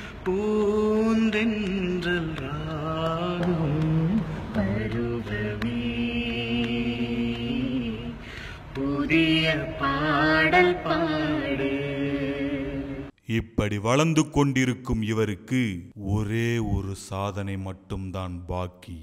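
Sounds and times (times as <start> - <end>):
person singing slow melody: 0.0 - 13.1.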